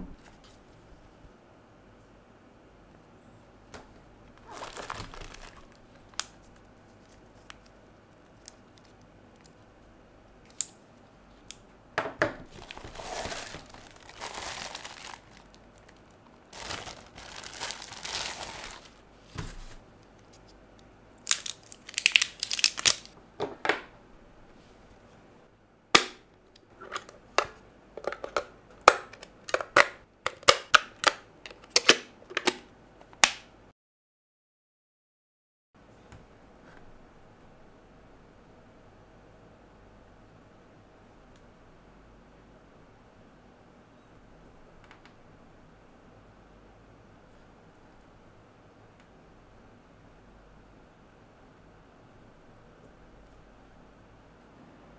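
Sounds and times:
plastic bag crinkling: 4.3s - 7.7s, 12.5s - 19.8s, 21.2s - 23.2s.

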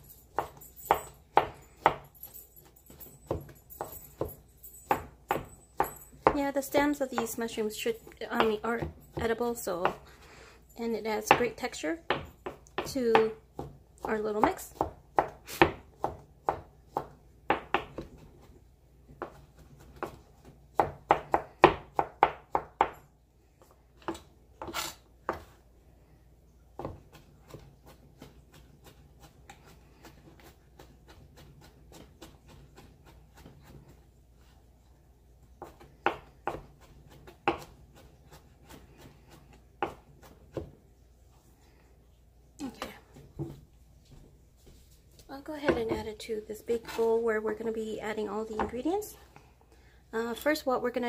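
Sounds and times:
knife chopping on cutting board: 0.3s - 6.4s, 8.3s - 10.0s, 11.3s - 18.5s, 19.1s - 23.0s, 24.0s - 25.6s, 26.8s - 34.0s, 35.6s - 40.8s.

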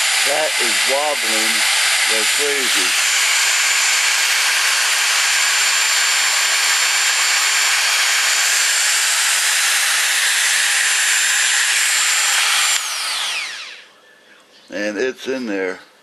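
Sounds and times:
rotary tool high whine: 0.0s - 13.9s.

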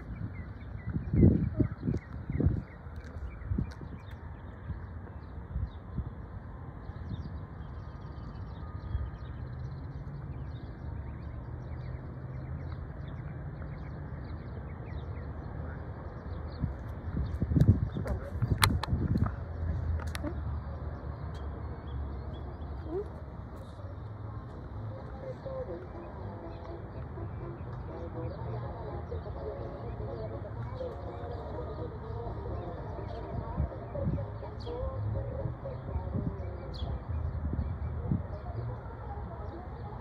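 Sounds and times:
small birds chirping: 0.0s - 6.0s
steady low rumble: 0.0s - 40.0s.

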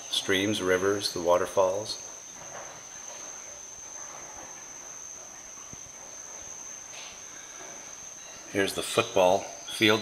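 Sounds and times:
faint background hiss: 0.0s - 10.0s.

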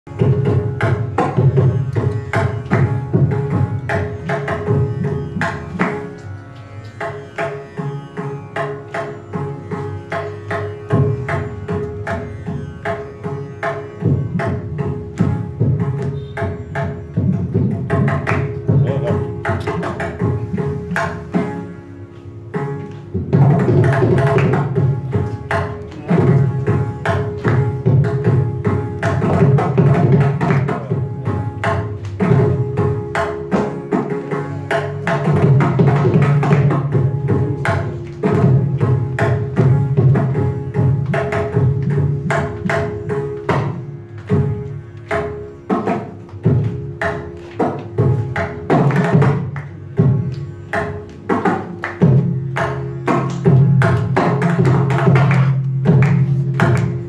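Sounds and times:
fast rhythmic drum strokes: 17.2s - 21.5s, 23.2s - 44.6s.

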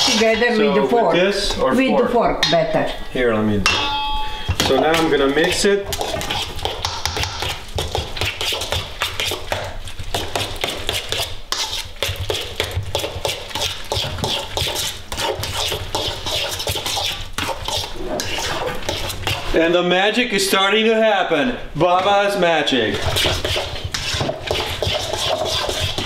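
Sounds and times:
fork scraping metal bowl: 0.0s - 1.6s, 3.7s - 19.7s, 22.9s - 26.0s.

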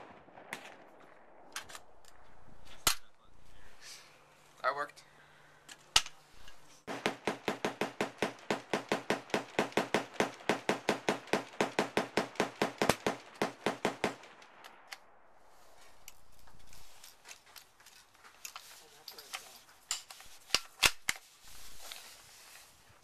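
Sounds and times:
rapid gunshots: 6.9s - 14.8s.

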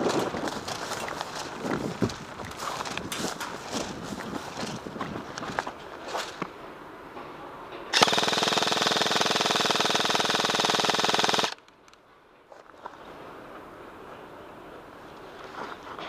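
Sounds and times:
airsoft rifle full-auto burst: 8.0s - 11.6s.

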